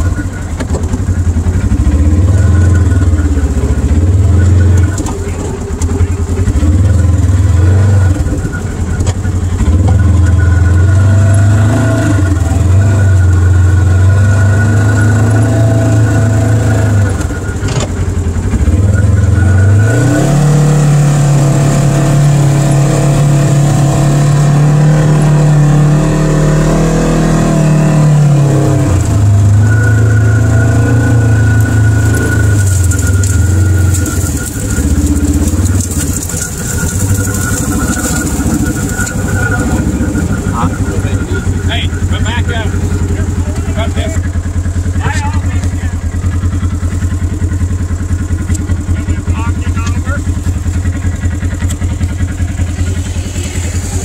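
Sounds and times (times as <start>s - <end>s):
vehicle engine running: 0.0s - 54.0s.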